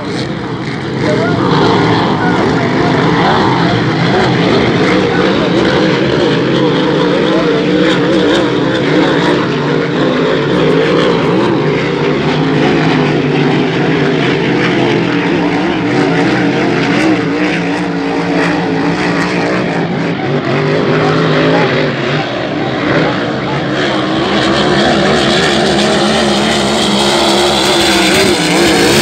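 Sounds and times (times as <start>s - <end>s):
racing boat engines droning: 0.0s - 29.0s.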